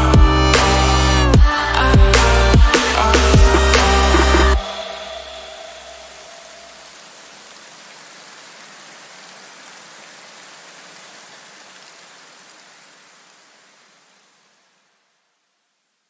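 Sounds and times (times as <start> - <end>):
electronic music tones: 0.0 - 6.8
steady hiss: 0.6 - 16.0.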